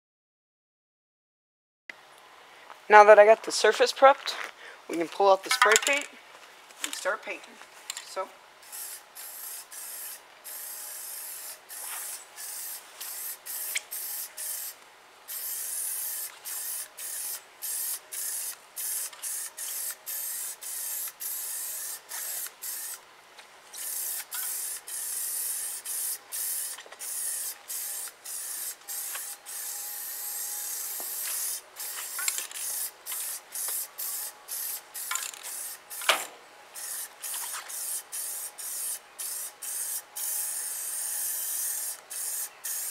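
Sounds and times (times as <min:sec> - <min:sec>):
spray paint can hissing: 0:08.6 - 0:23.0, 0:23.7 - 0:36.2, 0:36.8 - 0:42.9.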